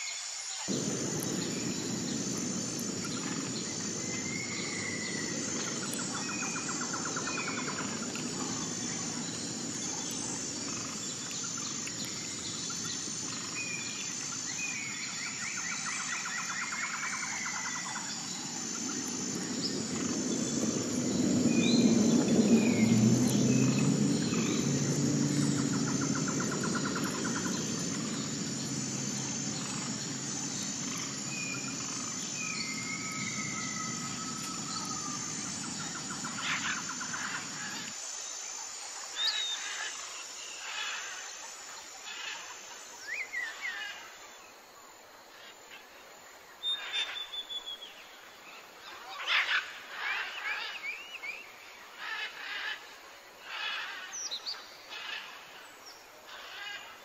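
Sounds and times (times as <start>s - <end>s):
high insect buzz: 0.0s - 57.0s
birds chirping and trilling: 0.7s - 37.9s, 53.5s - 57.0s
low engine drone: 0.7s - 38.0s.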